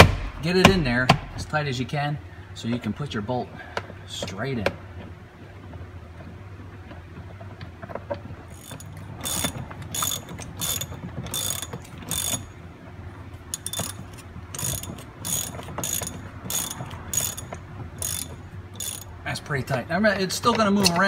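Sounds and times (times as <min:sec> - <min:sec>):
ratchet wrench clicking: 0:08.5 - 0:12.6, 0:13.4 - 0:19.2.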